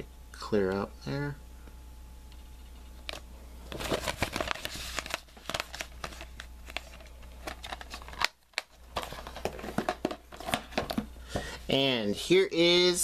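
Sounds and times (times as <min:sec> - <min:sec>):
paper packaging crinkling: 0:03.0 - 0:11.0.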